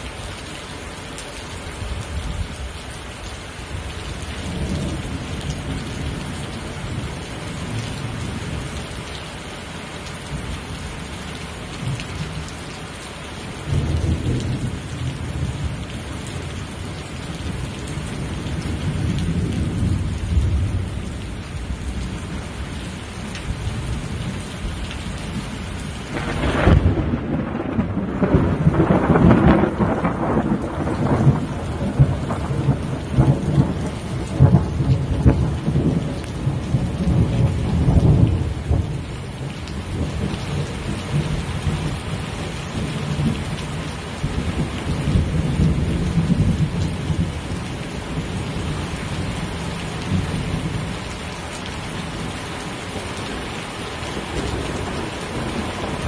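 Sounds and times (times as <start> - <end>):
heavy rain: 0.0 - 56.0
loud thunderclap: 26.1 - 39.0
thunder rumbling: 26.1 - 39.0.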